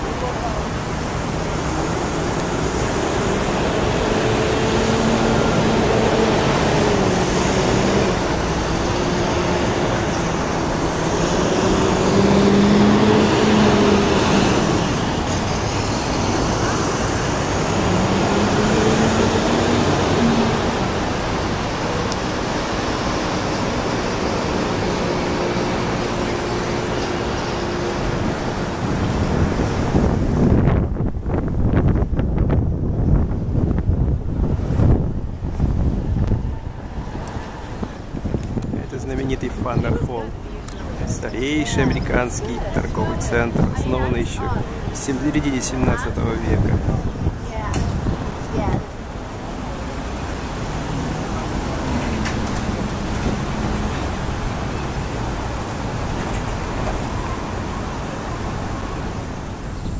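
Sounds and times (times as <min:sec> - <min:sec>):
passing vehicles: 0:00.0 - 0:59.9.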